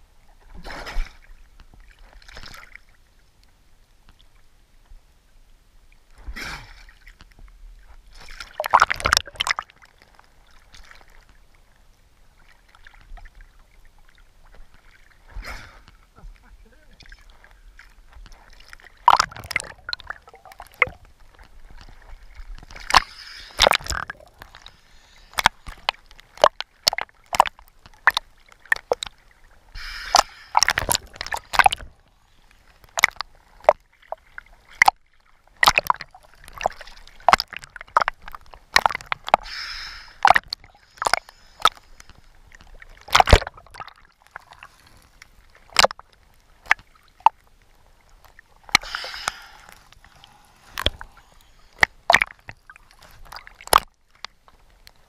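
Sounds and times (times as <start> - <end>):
water sloshing and gurgling: 0.0 - 55.0
bubbling hisses: 29.7 - 31.7, 39.3 - 42.0, 48.8 - 51.8.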